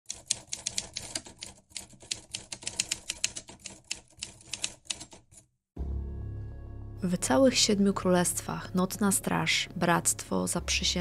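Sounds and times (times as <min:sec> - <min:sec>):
typewriter keys clacking: 0:00.1 - 0:05.5.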